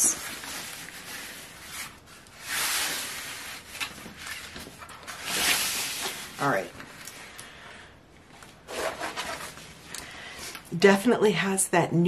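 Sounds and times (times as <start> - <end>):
hand rubbing canvas rustling: 8.4 - 9.8.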